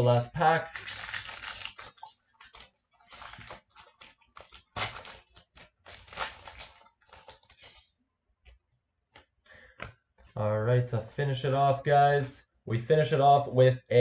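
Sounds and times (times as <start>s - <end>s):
foil wrapper crinkling and tearing: 0.3s - 7.8s.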